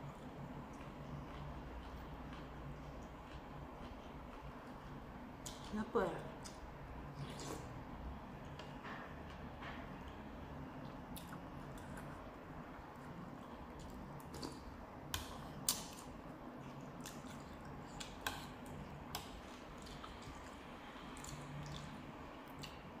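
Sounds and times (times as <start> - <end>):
wet chewing: 13.0 - 22.8.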